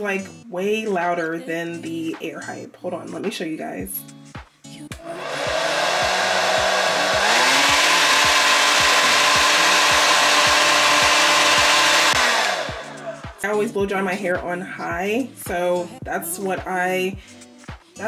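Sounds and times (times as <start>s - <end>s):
hair dryer running: 5.0s - 13.4s.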